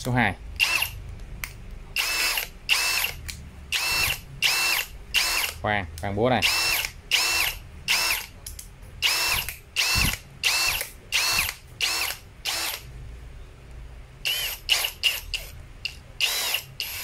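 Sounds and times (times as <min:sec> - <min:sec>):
cordless drill motor whining: 0:02.0 - 0:05.6, 0:06.4 - 0:08.3, 0:09.0 - 0:12.8, 0:14.3 - 0:15.5, 0:16.2 - 0:17.0.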